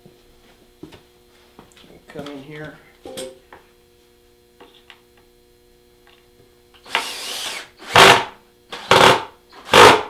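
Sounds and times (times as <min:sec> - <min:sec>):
cordless drill driving a screw: 0:06.8 - 0:10.0.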